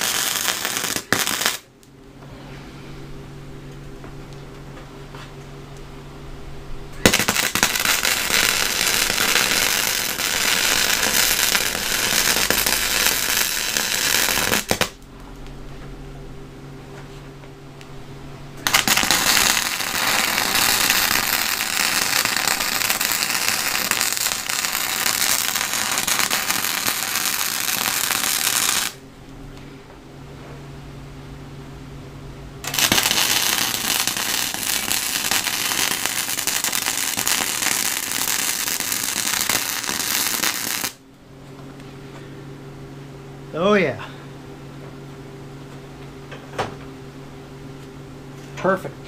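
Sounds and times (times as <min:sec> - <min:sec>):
welding arc crackling: 0:00.0 - 0:01.8, 0:07.0 - 0:15.5, 0:18.6 - 0:29.0, 0:32.6 - 0:41.0
low steady hum: 0:00.0 - 0:49.0.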